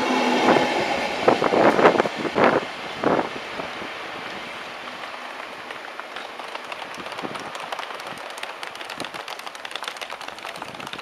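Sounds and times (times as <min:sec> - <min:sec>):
train rushing noise: 0:00.0 - 0:11.0
train wheels clattering on rails: 0:04.8 - 0:11.0.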